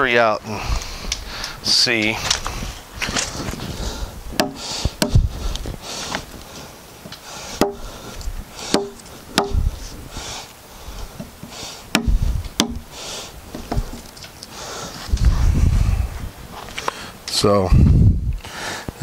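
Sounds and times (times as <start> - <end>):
scraping of wood: 2.2 - 9.7, 11.1 - 14.4
hammer striking chisel into wood: 4.4 - 5.2, 7.6 - 7.8, 8.7 - 9.6, 11.9 - 12.8.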